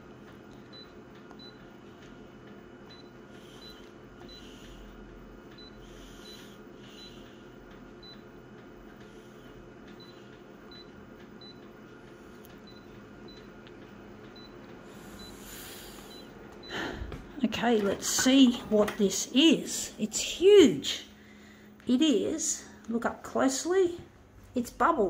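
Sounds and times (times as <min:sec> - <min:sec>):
machine humming: 0:00.0 - 0:25.0.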